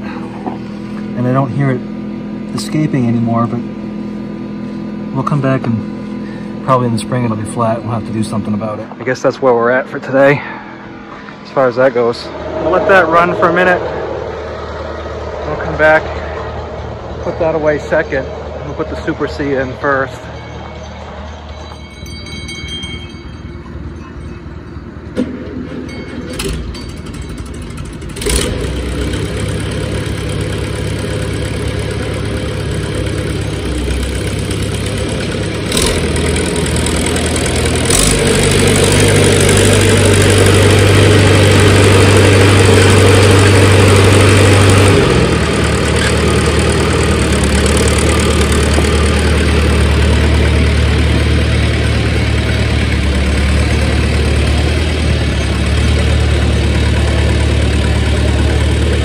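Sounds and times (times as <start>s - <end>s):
tractor engine running: 0.0s - 59.0s
sharp clanks: 20.4s - 29.2s.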